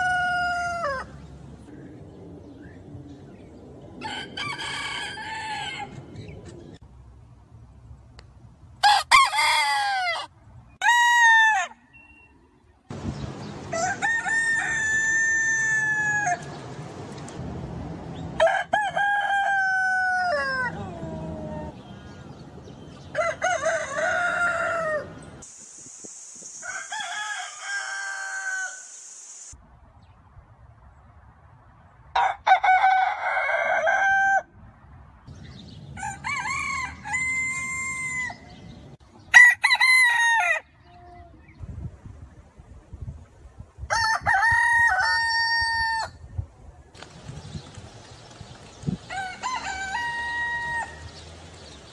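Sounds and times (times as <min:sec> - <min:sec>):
roosters crowing: 0:00.0 - 0:01.3, 0:04.0 - 0:06.3, 0:08.8 - 0:11.9, 0:13.6 - 0:16.6, 0:18.4 - 0:22.3, 0:23.0 - 0:25.4, 0:26.6 - 0:29.0, 0:32.2 - 0:34.6, 0:35.9 - 0:38.6, 0:39.2 - 0:40.9, 0:43.9 - 0:46.2, 0:49.0 - 0:51.7.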